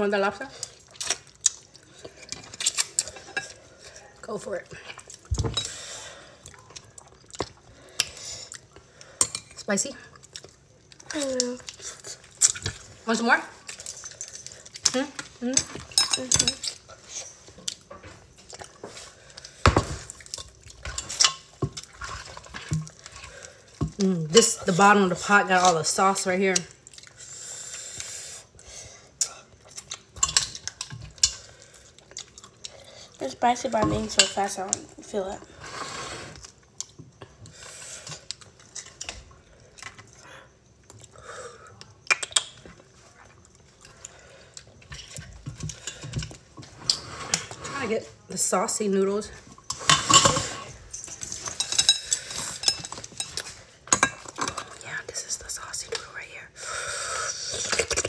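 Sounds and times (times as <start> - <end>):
squishy saucy noodles: 0.5 - 5.3
metal tongs clacking in a pot: 14.8 - 16.8, 20.4 - 21.9, 30.2 - 31.4, 49.7 - 54.6
metal tongs clinking on ceramic bowl: 15.5 - 16.8.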